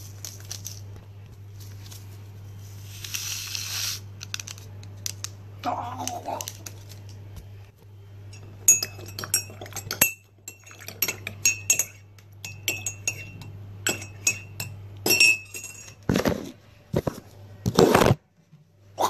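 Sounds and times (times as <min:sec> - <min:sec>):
spoon clinking in ceramic mug: 0:08.3 - 0:16.0.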